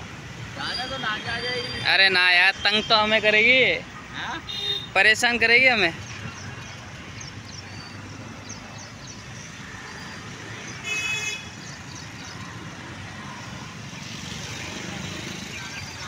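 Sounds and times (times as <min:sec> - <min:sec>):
road traffic noise: 0:00.0 - 0:16.0
vehicle horn toot: 0:10.8 - 0:11.5.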